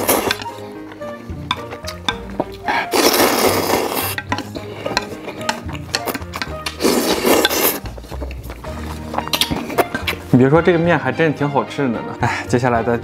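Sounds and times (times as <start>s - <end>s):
man slurping noodles: 0.0s - 0.6s, 2.5s - 8.4s.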